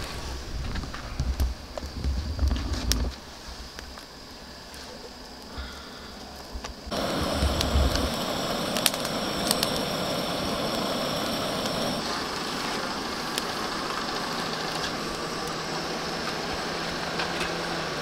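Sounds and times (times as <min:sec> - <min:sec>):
car road and engine noise: 0:06.9 - 0:18.0.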